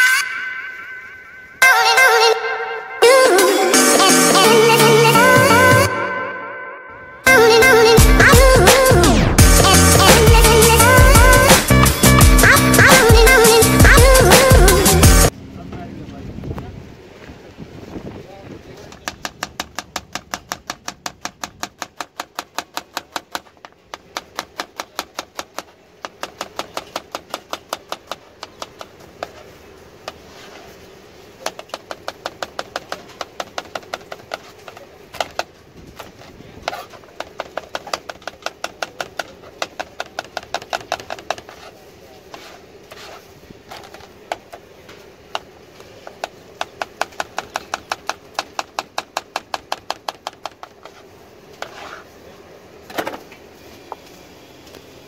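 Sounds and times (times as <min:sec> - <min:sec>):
knife chopping on plastic board: 0:18.9 - 0:29.4, 0:31.4 - 0:41.6, 0:45.4 - 0:51.0.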